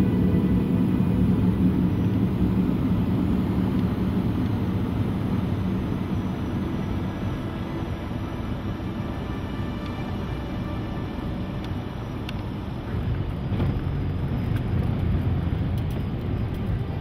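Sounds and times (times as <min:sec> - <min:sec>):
aircraft engine drone: 0:00.0 - 0:17.0.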